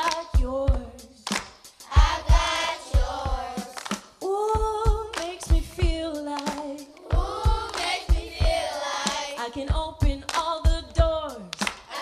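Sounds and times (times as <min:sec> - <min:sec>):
woman singing: 0:00.0 - 0:01.2, 0:04.2 - 0:07.0, 0:09.4 - 0:11.6
children's choir singing: 0:01.9 - 0:03.8, 0:07.0 - 0:09.4.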